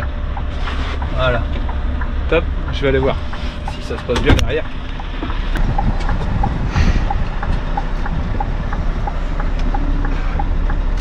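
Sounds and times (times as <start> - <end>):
diesel engine running at low revs: 0.0 - 11.0
light ticking: 0.0 - 11.0.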